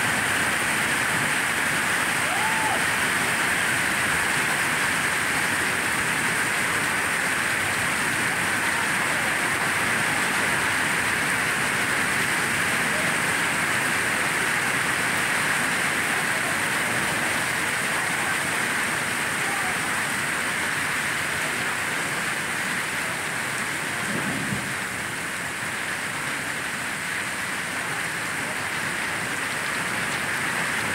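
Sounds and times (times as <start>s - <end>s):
hail pelting water and gravel: 0.0s - 30.9s.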